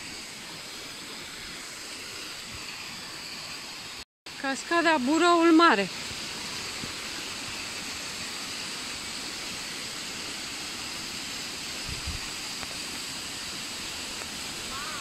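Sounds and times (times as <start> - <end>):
waterfall rushing: 4.6 - 15.0.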